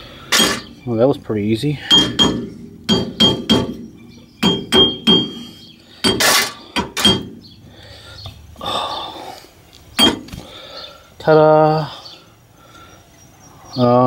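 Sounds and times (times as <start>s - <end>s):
hammer striking metal hub: 0.3s - 0.8s, 1.8s - 7.4s, 10.0s - 10.3s.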